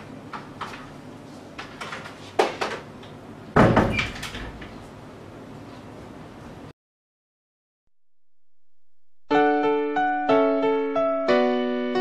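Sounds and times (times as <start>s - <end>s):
sharp knock on door: 3.6s - 4.0s
wooden door closing with a thud: 3.6s - 4.7s.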